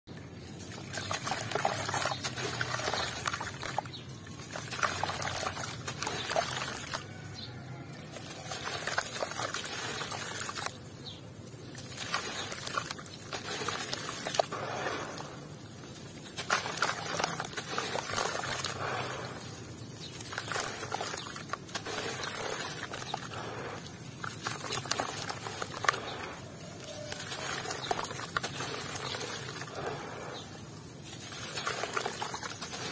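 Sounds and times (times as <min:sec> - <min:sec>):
grit pattering into water: 0:00.1 - 0:32.9
small splashes: 0:00.1 - 0:32.9.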